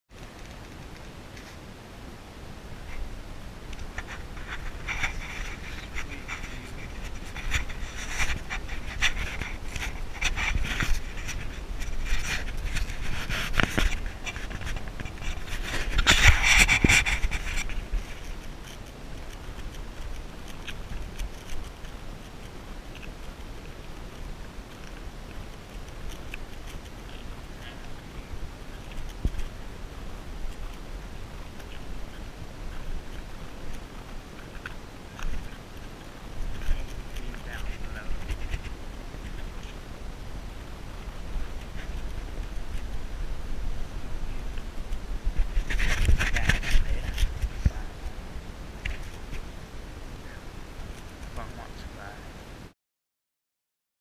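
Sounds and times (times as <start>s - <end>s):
camera handling rumble: 3.7s - 29.6s, 30.4s - 39.8s, 40.7s - 48.2s, 48.8s - 49.5s
faint clicks and ticks: 3.7s - 39.8s.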